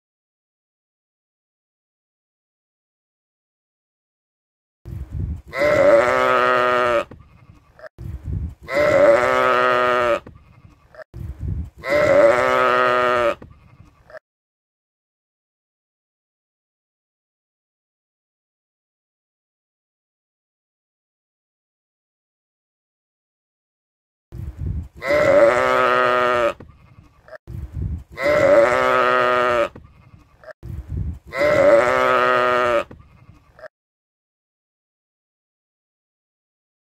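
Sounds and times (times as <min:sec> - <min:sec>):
sheep bleating: 0:05.5 - 0:07.9, 0:08.6 - 0:11.1, 0:11.8 - 0:14.2, 0:25.0 - 0:27.4, 0:28.1 - 0:30.6, 0:31.3 - 0:33.7.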